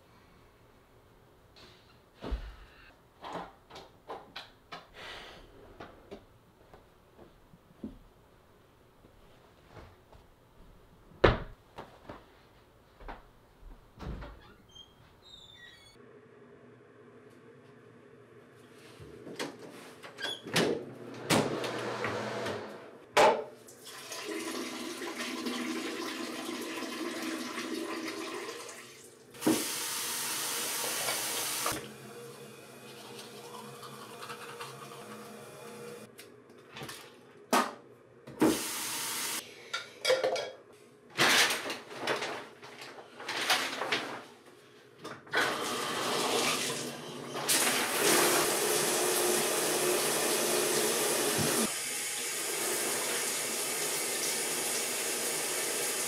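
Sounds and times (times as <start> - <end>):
water running: 23.6 - 36.1, 45.4 - 56.0.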